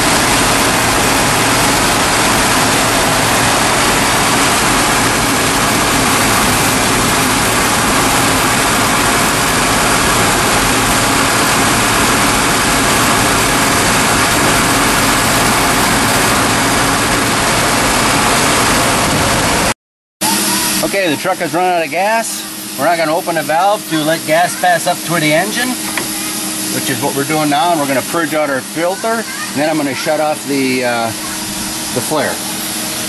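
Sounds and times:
engine idling: 0:00.0 - 0:19.7.

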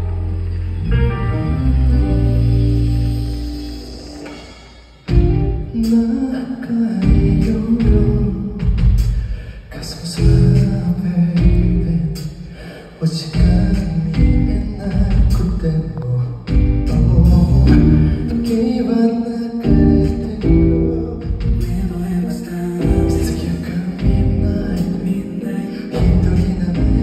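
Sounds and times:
band with drums and keyboards: 0:00.0 - 0:27.0
man singing into a microphone: 0:05.6 - 0:27.0.

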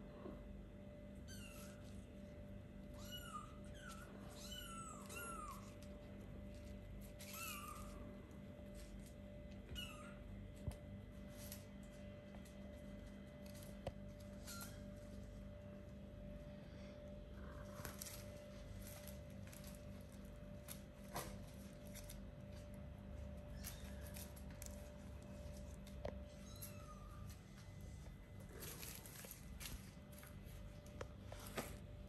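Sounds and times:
kittens mewing: 0:02.9 - 0:06.0.

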